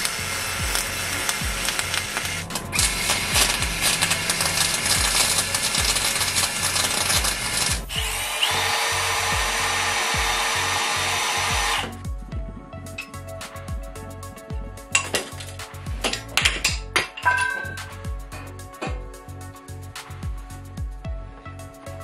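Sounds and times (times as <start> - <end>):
welding arc crackling and hissing: 0.0 - 12.1, 14.9 - 16.8.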